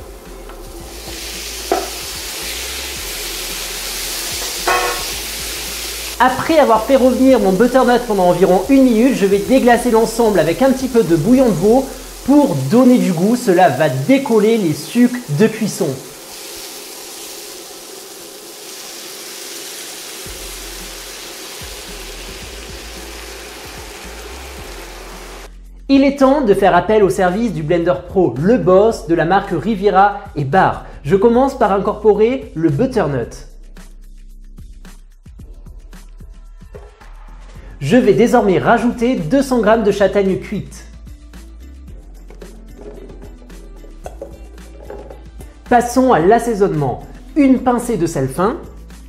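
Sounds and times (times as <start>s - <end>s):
squash sizzling in a pan: 0.1s - 25.5s
knock: 1.7s - 2.0s, 44.0s - 45.2s.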